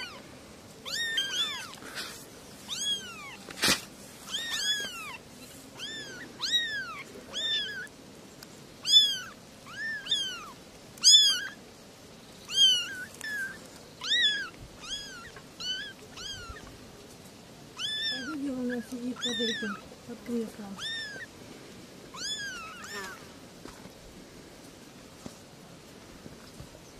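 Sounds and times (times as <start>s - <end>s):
kittens meowing: 0.0s - 3.5s, 4.2s - 8.0s, 8.8s - 11.6s, 12.4s - 16.8s, 17.7s - 21.4s, 22.1s - 23.3s.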